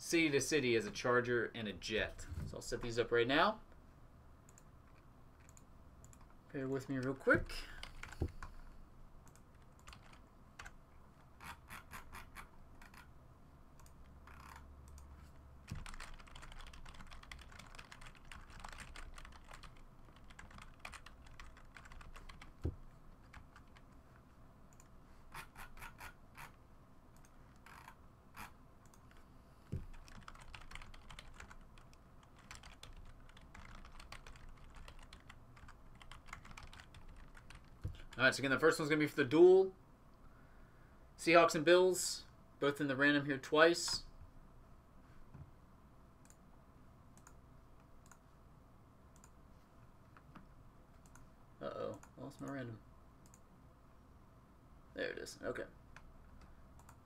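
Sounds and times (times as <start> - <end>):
typing on computer keyboard: 9.3 - 10.8, 11.4 - 13.1, 13.8 - 15.1, 15.7 - 23.8, 29.9 - 38.1.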